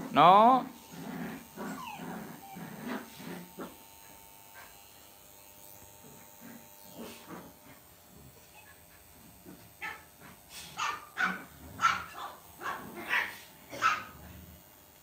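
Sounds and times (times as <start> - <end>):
dogs whining: 1.4 - 3.6.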